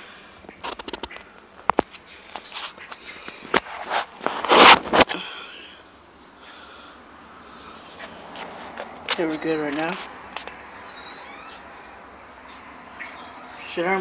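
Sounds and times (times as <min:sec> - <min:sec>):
phone microphone handling noise: 0:00.5 - 0:05.2.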